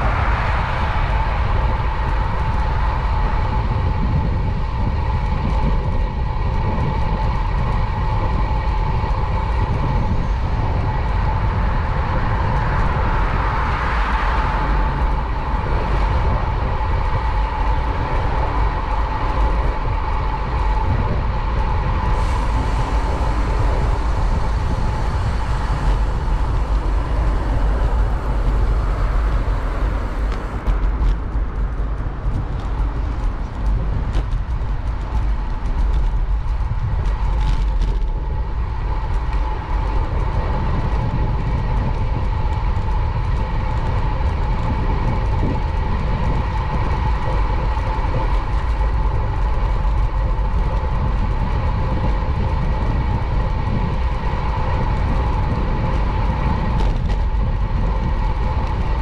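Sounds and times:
city street traffic rumble: 0:00.0 - 0:59.0.

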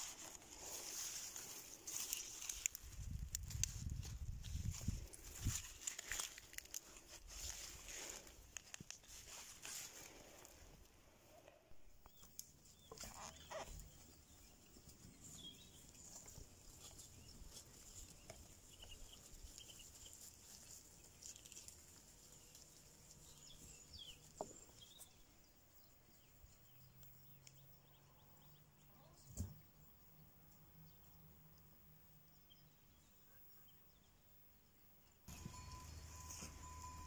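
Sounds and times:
faint chirps: 0:11.8 - 0:37.0.

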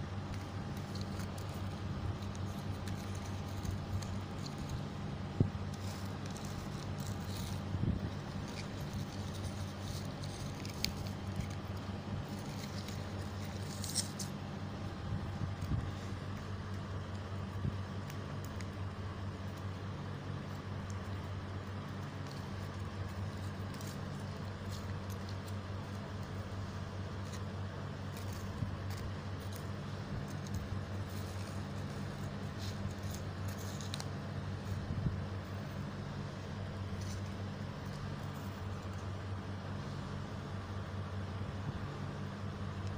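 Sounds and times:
paper crinkling: 0:00.0 - 0:40.1
steady low hum: 0:00.0 - 0:42.9.

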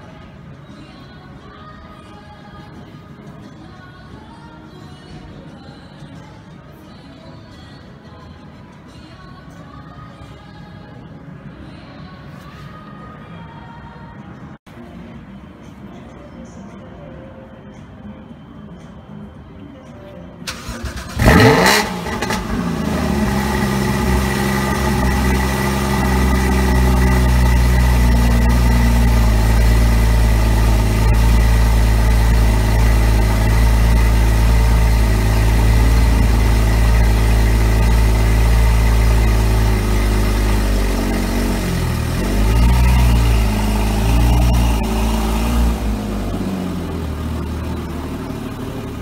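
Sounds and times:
car engine starting and idling: 0:20.4 - 0:49.0.

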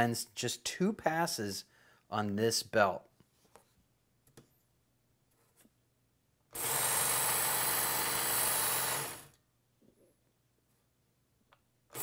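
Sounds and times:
belt knife sharpener running: 0:06.6 - 0:09.3.

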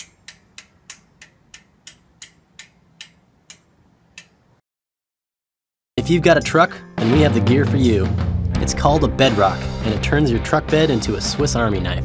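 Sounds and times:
sharp clean ticks: 0:00.0 - 0:04.4.

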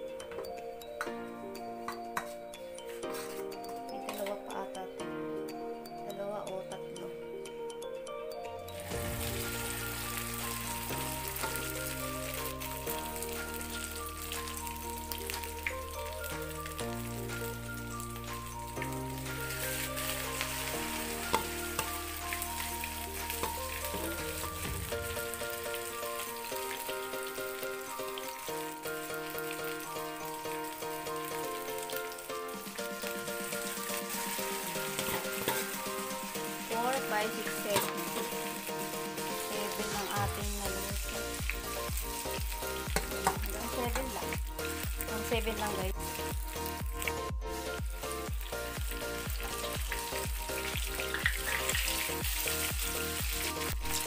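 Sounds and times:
background music: 0:00.0 - 0:54.0
fritters sizzling in oil: 0:08.8 - 0:54.0
bass beat: 0:40.2 - 0:54.0.

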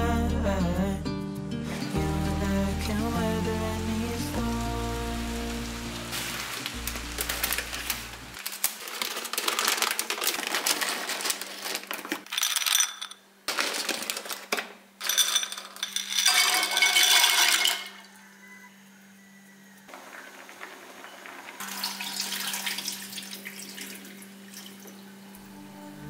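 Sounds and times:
plastic bag crinkling: 0:04.5 - 0:17.9
dry pasta clattering into bowl: 0:06.1 - 0:18.0.

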